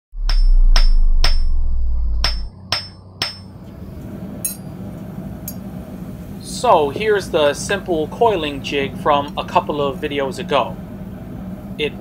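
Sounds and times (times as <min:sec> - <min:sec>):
loud low drone: 0:00.1 - 0:09.0
hammer striking anvil: 0:00.2 - 0:01.5, 0:02.2 - 0:03.6, 0:04.4 - 0:04.7.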